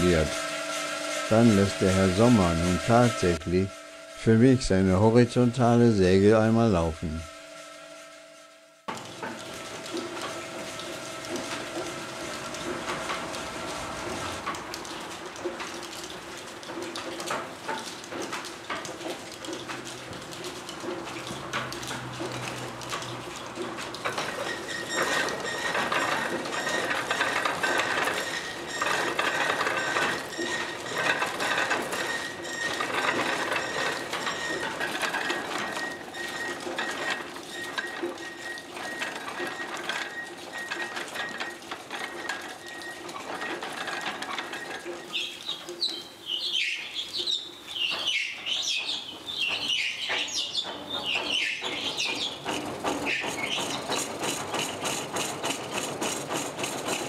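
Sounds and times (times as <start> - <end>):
steady hum: 0.0 - 8.9
frame saw clattering: 8.9 - 57.0.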